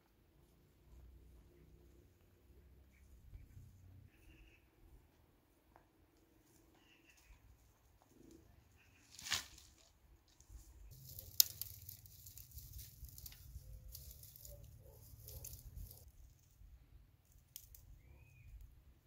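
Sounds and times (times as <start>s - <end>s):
twigs crackling and rustling: 5.7s - 18.4s
twigs crashing onto ground: 9.0s - 9.9s, 10.9s - 14.5s
twig snapping: 11.0s - 14.4s.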